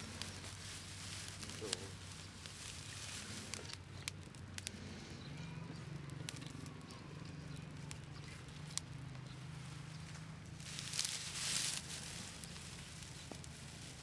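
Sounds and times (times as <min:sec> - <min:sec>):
sharp pops from fire: 0:00.0 - 0:04.8
fire crackling: 0:00.0 - 0:14.0.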